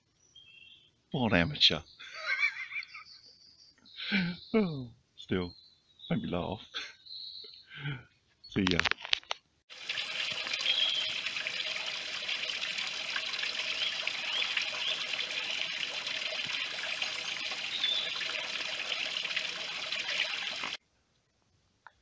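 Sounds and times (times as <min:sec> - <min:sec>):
waterfall trickling into pool: 0:09.7 - 0:20.8.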